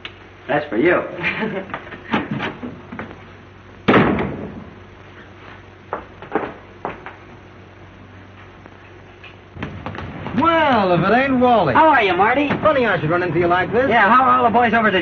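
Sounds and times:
door slamming: 3.9s - 4.6s, 12.3s - 12.9s.

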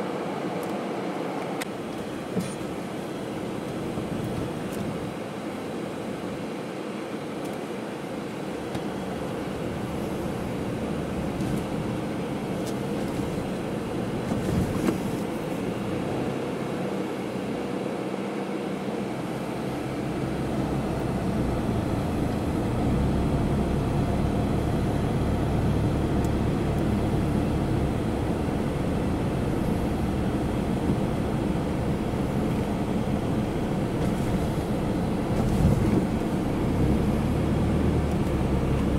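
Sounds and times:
engine and tyre rumble: 0.0s - 38.9s.

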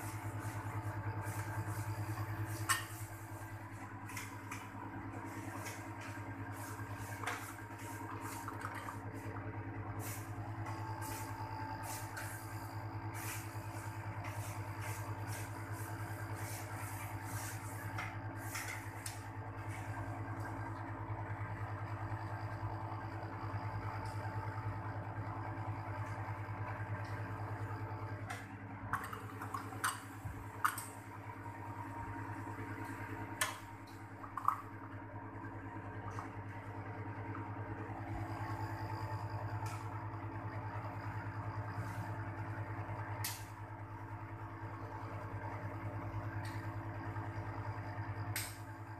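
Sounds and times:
air conditioner unit humming: 0.0s - 48.9s.

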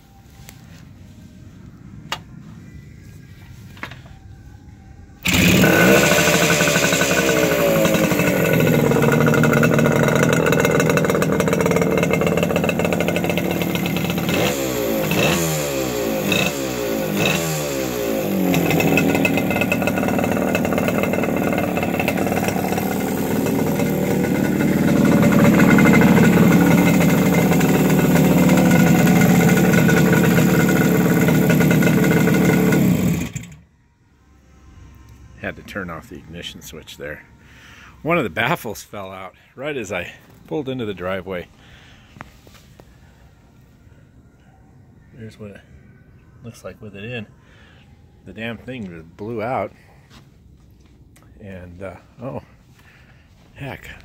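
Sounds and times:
two-stroke motorcycle engine revving: 5.2s - 33.6s.

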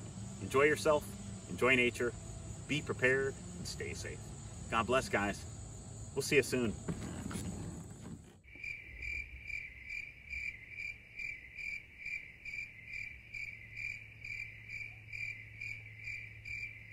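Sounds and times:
insect chirping: 0.0s - 7.7s, 8.4s - 16.9s
low steady hum: 0.0s - 8.4s.

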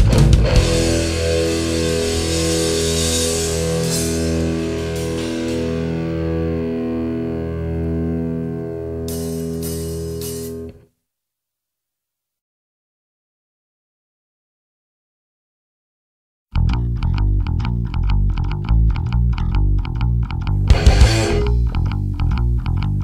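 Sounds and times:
electric guitar chord ringing: 0.3s - 10.8s, 20.6s - 21.9s
cymbal hiss: 9.1s - 10.7s.

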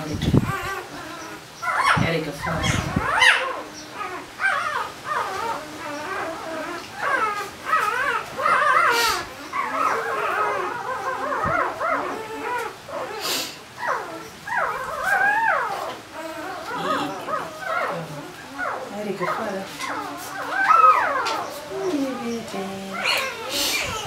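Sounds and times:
puppy crying: 0.0s - 24.0s
short breathy hisses: 8.9s - 9.3s, 13.2s - 13.6s, 23.5s - 23.9s.

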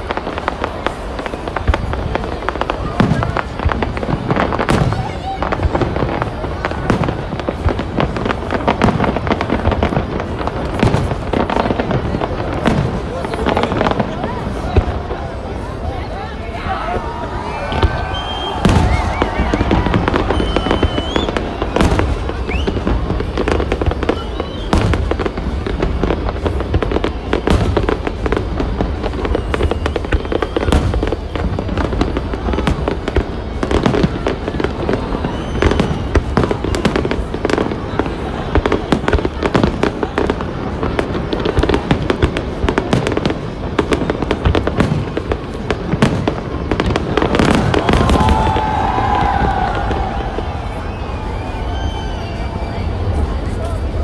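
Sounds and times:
fireworks bangs and crackling: 0.0s - 54.0s.

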